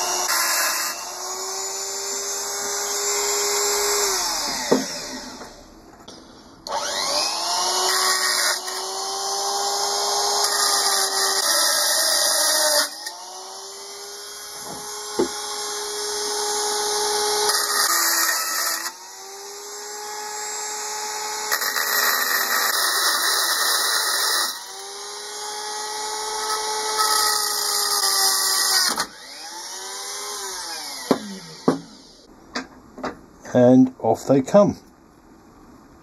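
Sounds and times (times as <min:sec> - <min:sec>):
rotary tool grinding metal: 0:00.0 - 0:05.6, 0:06.7 - 0:32.3
rotary tool spinning down: 0:06.7 - 0:32.3.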